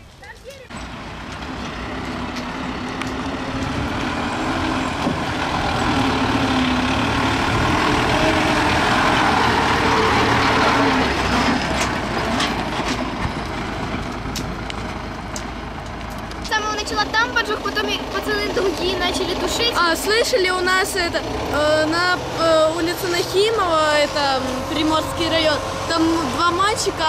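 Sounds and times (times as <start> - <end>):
fire engine driving past: 0.0 - 27.0
tyres on gravel: 0.0 - 27.0.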